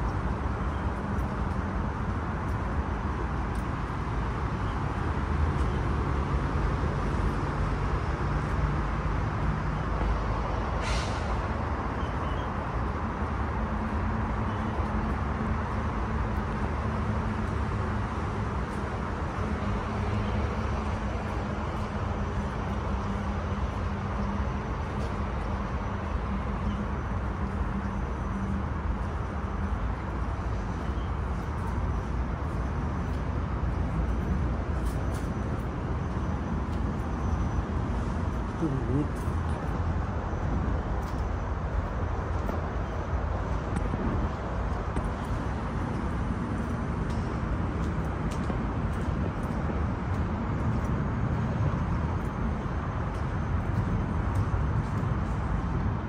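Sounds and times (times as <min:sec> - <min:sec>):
street traffic engine hum: 0:00.0 - 0:56.0
brief hiss: 0:10.8 - 0:11.4.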